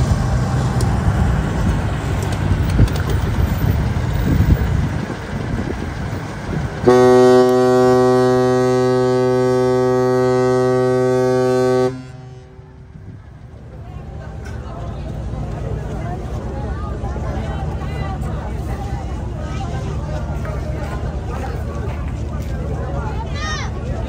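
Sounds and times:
truck engine driving past: 0.0s - 24.0s
ship's horn blast: 6.8s - 12.9s.

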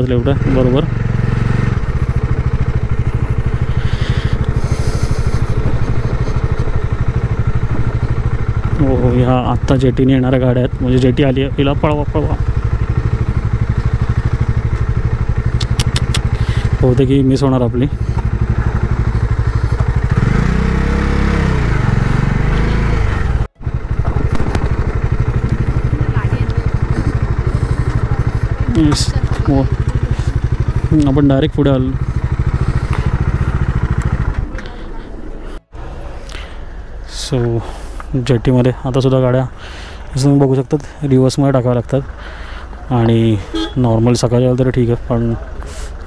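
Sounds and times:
motorcycle engine running: 0.0s - 46.0s.

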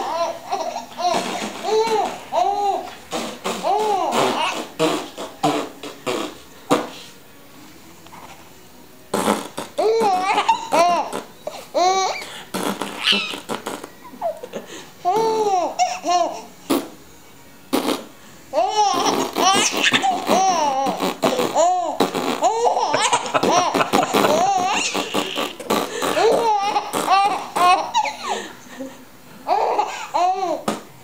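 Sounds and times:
baby laughing: 0.0s - 2.9s, 12.9s - 13.5s, 18.6s - 28.4s.

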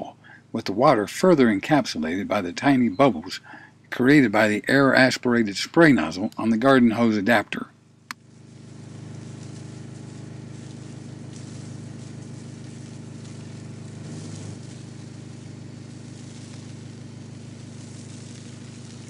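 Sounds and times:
small gas engine running: 8.1s - 19.0s
water and foam spraying hiss: 8.2s - 19.0s.

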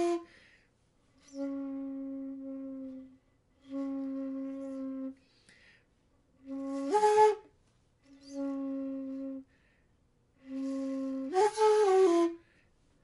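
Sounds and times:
bamboo flute low notes: 0.0s - 0.4s, 1.2s - 5.4s, 6.4s - 9.6s, 10.4s - 12.6s.

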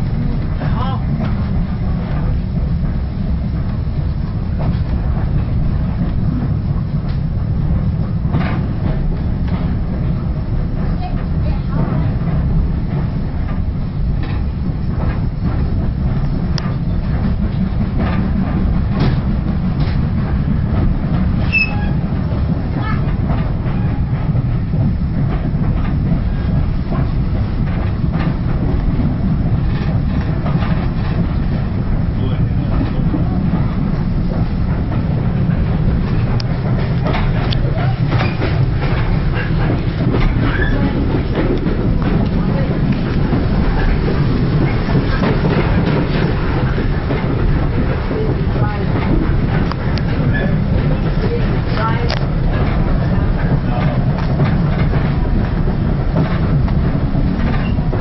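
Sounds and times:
train coach rumbling on track: 0.0s - 58.0s
faint wheel and rail clicks: 12.9s - 31.8s, 32.6s - 58.0s.

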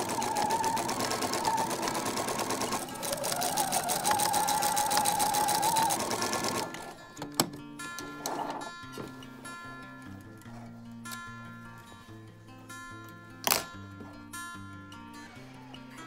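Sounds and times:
sewing machine stitching: 0.0s - 8.7s.

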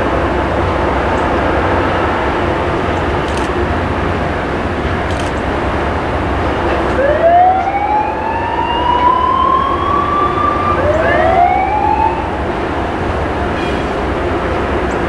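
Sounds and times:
rail grinder train rumble and hiss: 0.0s - 15.0s
rising pitched whine: 6.2s - 13.5s.

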